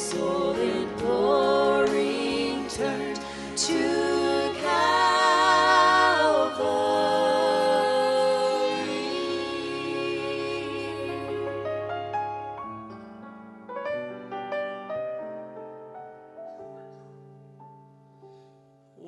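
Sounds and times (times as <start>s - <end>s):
vocal group singing a hymn: 0.0s - 11.8s.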